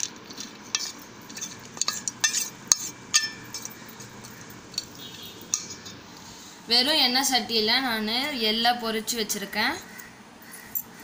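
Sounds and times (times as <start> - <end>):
steel clinking on steel: 0.0 - 6.0.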